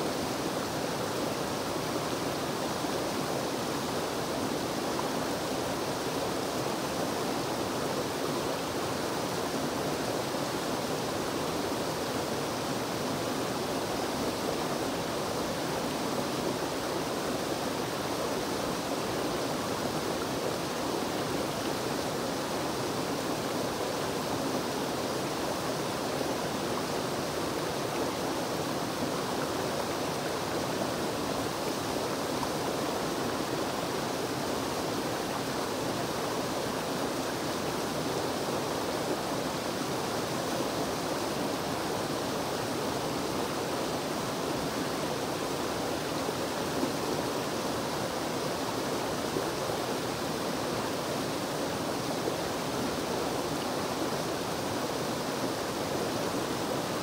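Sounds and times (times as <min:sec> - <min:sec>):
creek rushing over rocks: 0:00.0 - 0:57.0.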